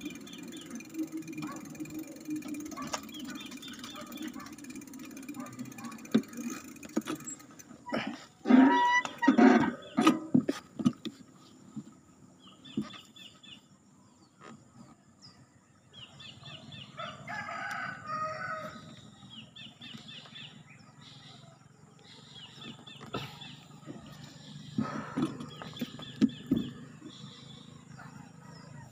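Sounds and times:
small birds chirping: 0.0 - 10.6, 11.2 - 17.8, 18.5 - 28.9
rooster crowing: 16.9 - 18.9.

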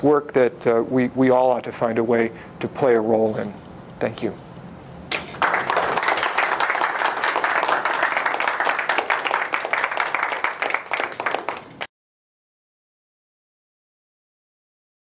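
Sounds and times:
small crowd applauding: 5.1 - 11.9.

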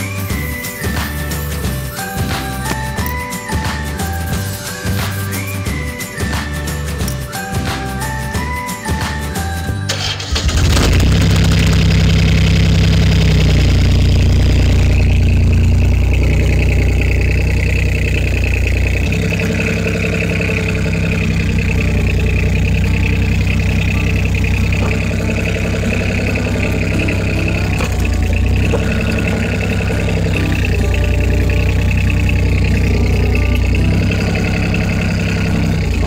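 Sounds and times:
diesel engine running: 9.6 - 36.0.

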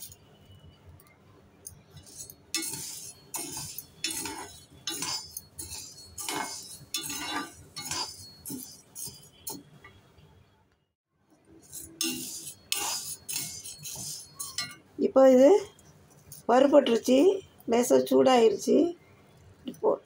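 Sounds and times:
lentils rattling in metal pan: 2.0 - 9.3, 11.7 - 14.6.

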